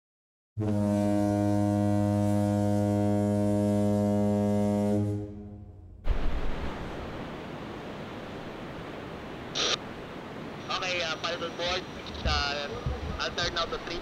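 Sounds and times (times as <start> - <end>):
ship's horn blast: 0.6 - 6.1
wind: 0.6 - 14.0
surf: 6.0 - 14.0
wind gusts on microphone: 11.7 - 14.0.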